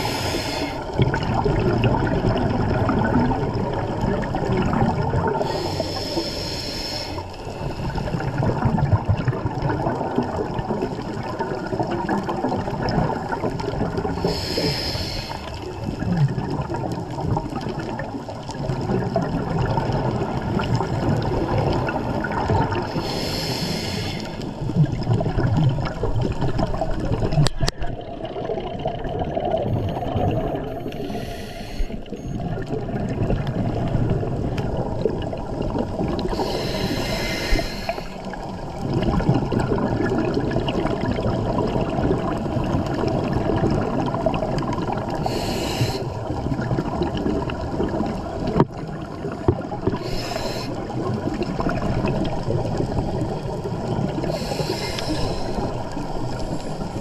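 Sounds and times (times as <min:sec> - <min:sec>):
diver inhaling through regulator: 0:00.0 - 0:01.0, 0:05.4 - 0:08.4, 0:14.2 - 0:15.6, 0:22.8 - 0:24.7, 0:30.7 - 0:32.3, 0:36.2 - 0:38.4, 0:45.2 - 0:46.2, 0:49.9 - 0:50.9, 0:54.2 - 0:57.0
bubbling exhalation underwater: 0:00.8 - 0:05.7, 0:08.1 - 0:14.5, 0:15.7 - 0:23.4, 0:24.5 - 0:31.3, 0:32.1 - 0:57.0.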